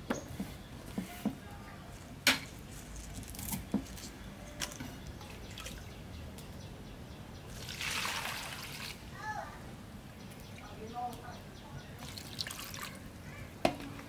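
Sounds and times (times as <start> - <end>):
water dripping: 12.0 - 13.0.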